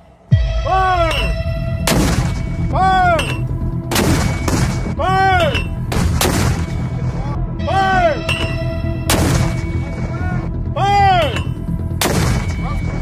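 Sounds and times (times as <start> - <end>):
mortar firing blasts: 1.8 - 2.5, 3.9 - 4.9, 5.9 - 6.8, 9.1 - 9.6, 12.0 - 12.6
ringing tone: 7.6 - 10.2.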